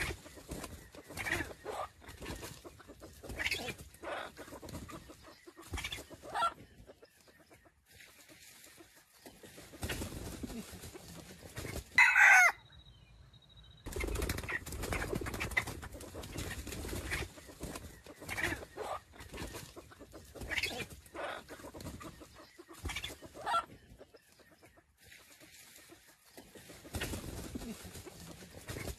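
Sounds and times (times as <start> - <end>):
rustle of dry leaves: 25.0 - 28.9.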